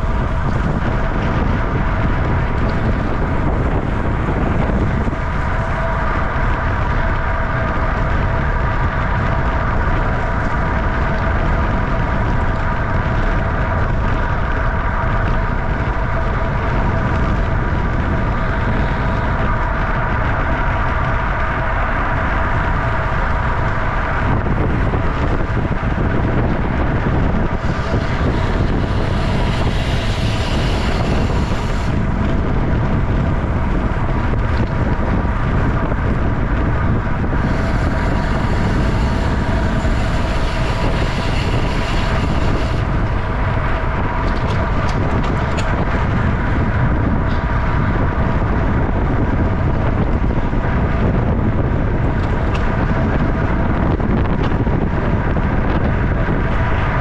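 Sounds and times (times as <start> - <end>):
bicycle tyre and drivetrain noise: 0.0 - 57.0
wind on microphone: 0.0 - 57.0.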